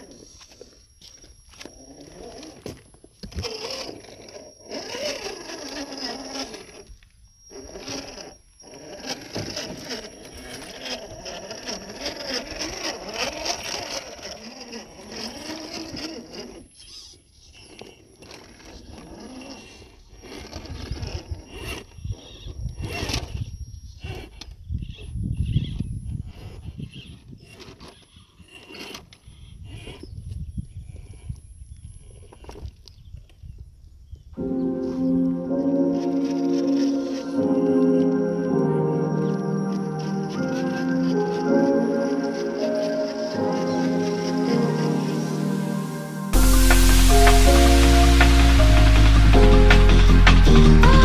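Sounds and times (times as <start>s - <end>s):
electric motor whining: 0.0s - 33.0s, 34.4s - 51.0s
knocks and scrapes on rocks: 26.4s - 30.0s.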